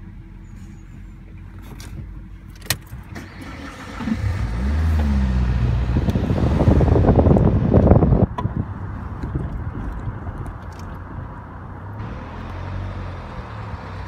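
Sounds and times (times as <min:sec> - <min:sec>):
car engine accelerating: 0:03.1 - 0:08.3, 0:08.9 - 0:14.0.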